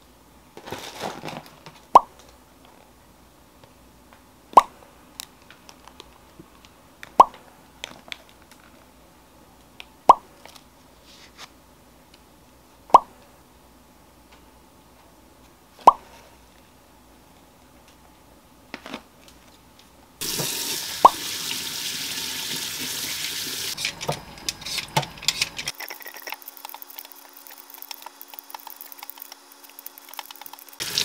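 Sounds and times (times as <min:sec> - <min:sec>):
plastic packaging crinkling: 0:00.6 - 0:01.8, 0:24.6 - 0:30.8.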